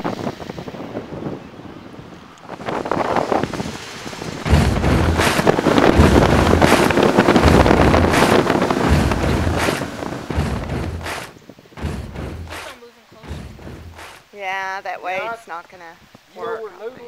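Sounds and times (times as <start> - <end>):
wind buffeting microphone: 0.0 - 14.3
deep pulsing rumble: 4.2 - 14.2.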